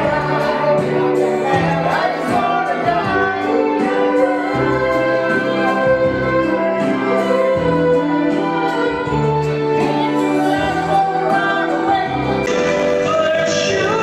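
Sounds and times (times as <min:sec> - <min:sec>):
amplified backing music: 0:00.0 - 0:14.0
man singing into microphone: 0:10.8 - 0:14.0.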